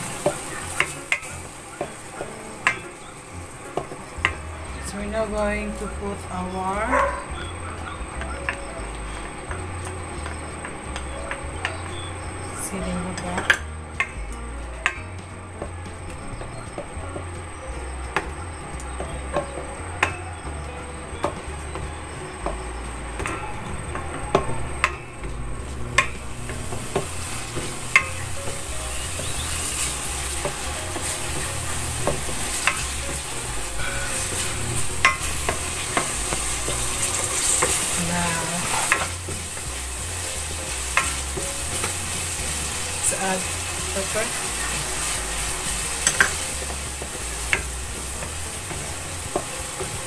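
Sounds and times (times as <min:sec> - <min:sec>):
oil sizzling: 0:00.0 - 0:50.0
spatula tapping on pan: 0:00.2 - 0:03.0, 0:21.2 - 0:25.4, 0:26.0 - 0:38.1, 0:44.5 - 0:50.0
spatula scraping a pan: 0:23.2 - 0:50.0.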